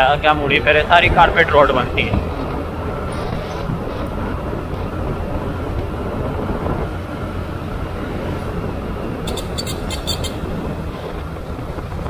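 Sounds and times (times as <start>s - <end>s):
motorcycle engine cruising: 0.0s - 12.0s
wind and road noise: 0.0s - 12.0s
sharp ticks: 9.3s - 10.4s.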